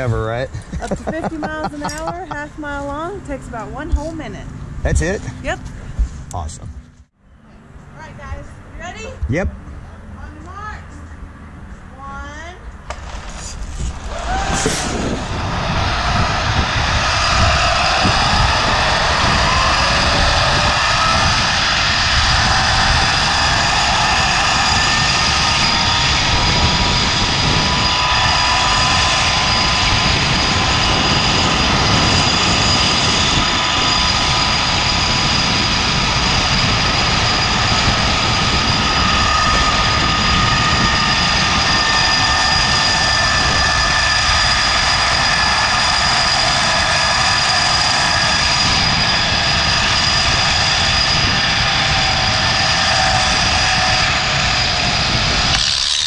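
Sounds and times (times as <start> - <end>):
wind rushing on microphone: 0.0 - 6.9, 12.9 - 56.0
zip line pulleys whining: 13.9 - 56.0.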